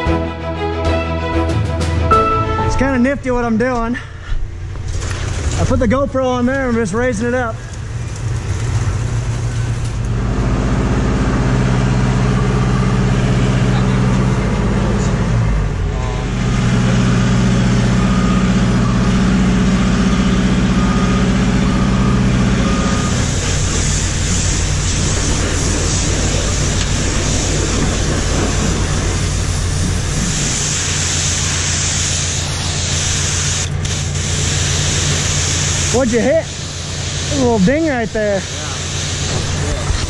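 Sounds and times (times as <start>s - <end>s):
heavy engine running: 4.4s - 40.0s
pressure washer spray hissing: 22.9s - 28.0s, 28.9s - 40.0s.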